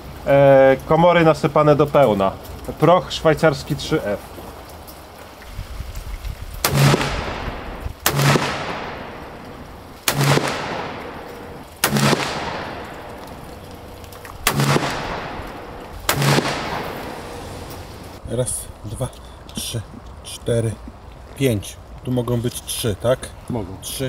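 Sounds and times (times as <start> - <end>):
revolver gunshots with echo: 6.6 - 18.1.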